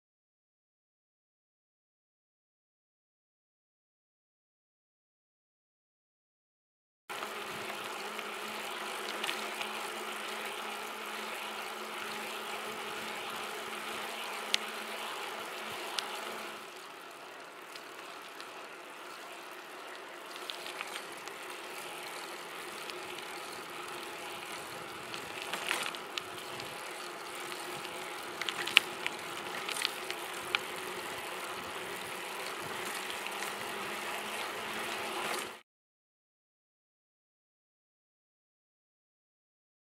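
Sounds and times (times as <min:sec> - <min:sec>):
bike tyres rolling on asphalt: 0:07.1 - 0:35.6.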